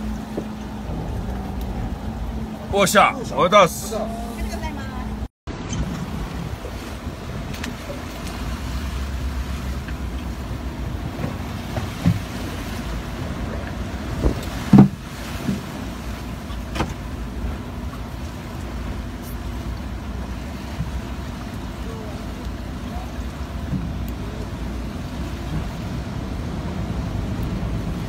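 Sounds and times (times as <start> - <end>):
boat wind and water rumble: 0.0 - 28.0
boat hull thumps: 0.1 - 1.4, 11.0 - 12.4, 13.4 - 17.1, 23.5 - 24.0.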